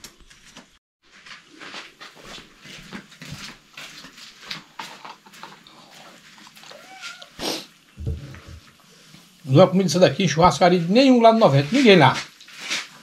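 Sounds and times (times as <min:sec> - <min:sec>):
cat mewing: 0:06.7 - 0:07.7.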